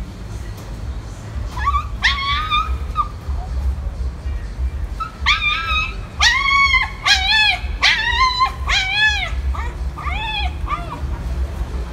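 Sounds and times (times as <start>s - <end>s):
small dog whining: 1.5s - 3.4s, 5.0s - 11.2s.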